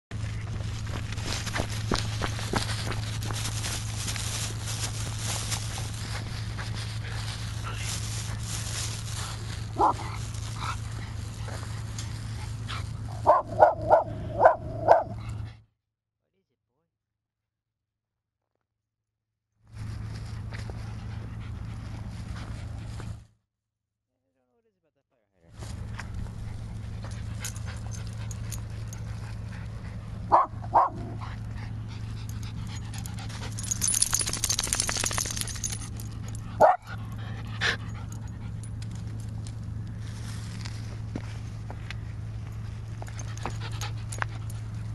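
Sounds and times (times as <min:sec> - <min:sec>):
steady low hum: 0:00.1 - 0:15.6
small dog barking: 0:09.8 - 0:10.2, 0:13.2 - 0:15.2, 0:30.3 - 0:31.2, 0:36.6 - 0:36.9.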